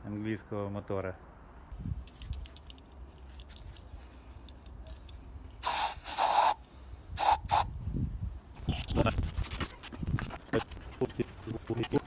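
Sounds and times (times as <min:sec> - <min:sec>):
aerosol spray hissing: 0:05.6 - 0:06.6, 0:07.2 - 0:07.7.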